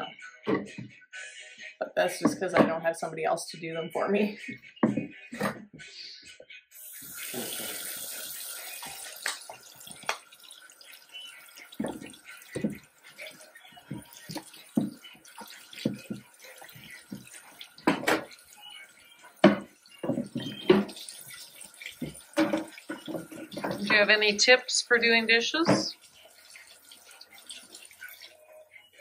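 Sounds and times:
board knocking against sink: 4.8 - 5.6, 17.2 - 18.3, 19.4 - 21.0, 22.0 - 24.0
faucet running into steel sink: 6.8 - 29.0.

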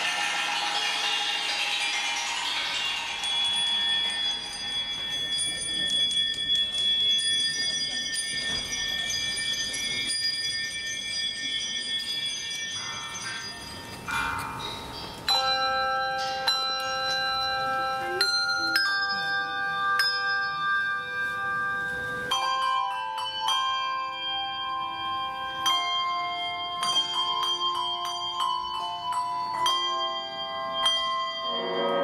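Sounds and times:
bells ringing: 0.0 - 32.0.

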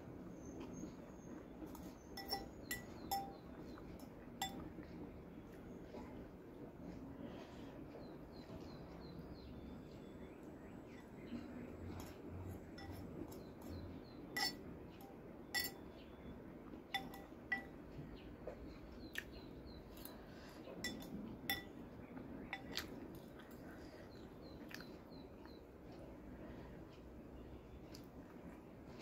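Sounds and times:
spoon clinking on ceramic bowl: 2.2 - 3.4, 4.0 - 4.7, 12.0 - 13.4, 14.4 - 15.9, 16.9 - 17.8, 20.8 - 21.8.

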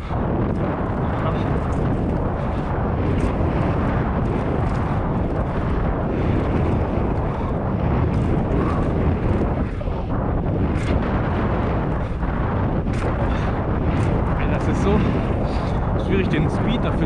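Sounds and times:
wind on microphone: 0.0 - 17.0.

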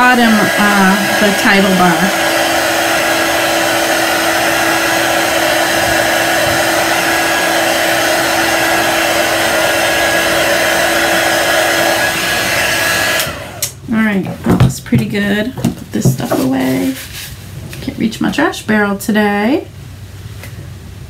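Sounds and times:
heat tool blowing hot air: 0.0 - 13.8.

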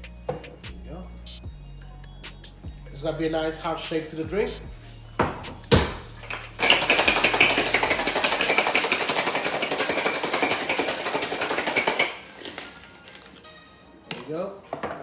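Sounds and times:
ice rattling in cocktail shaker: 6.3 - 13.4.

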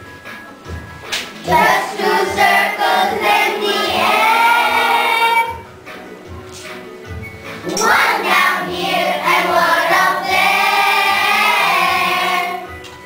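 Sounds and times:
children singing together: 1.4 - 5.6, 7.6 - 12.8.

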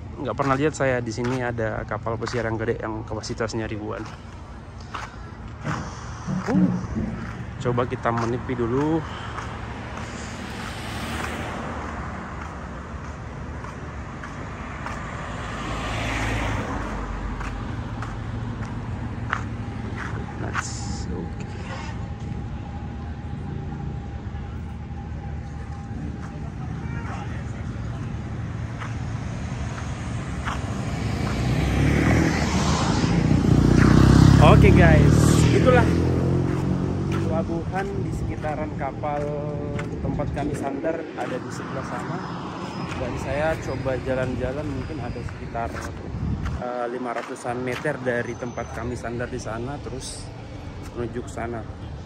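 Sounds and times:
low traffic rumble: 0.0 - 52.0
vehicle passing: 3.3 - 52.0
car driving past: 4.9 - 12.6, 14.4 - 22.2, 27.2 - 46.0.

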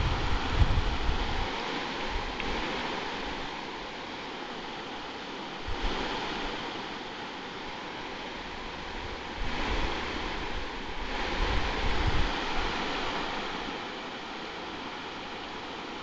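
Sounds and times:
low rumble on microphone: 0.0 - 3.5, 5.6 - 6.6, 8.4 - 13.9
river water rushing over rocks: 0.0 - 16.0.

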